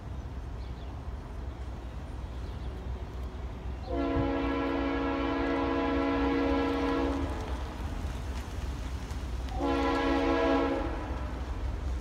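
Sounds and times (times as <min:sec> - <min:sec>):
locomotive air horn: 0:03.9 - 0:07.4, 0:09.6 - 0:11.2.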